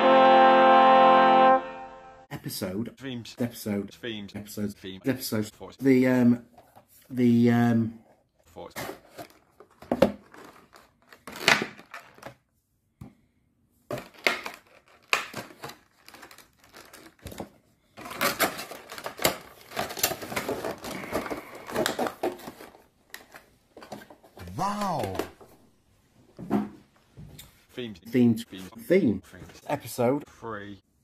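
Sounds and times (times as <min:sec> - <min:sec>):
crinkling: 0:08.5 - 0:12.5, 0:13.9 - 0:25.6.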